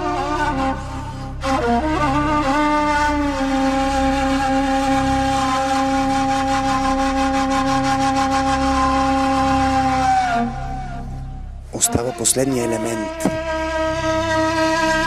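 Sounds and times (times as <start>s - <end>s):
low pulsing backing track: 6.9s - 15.0s.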